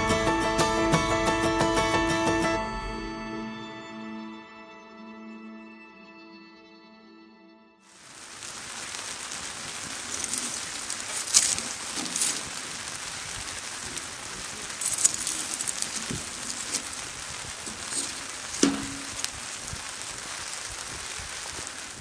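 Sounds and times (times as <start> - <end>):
campfire crackling and popping: 8.0 - 22.0.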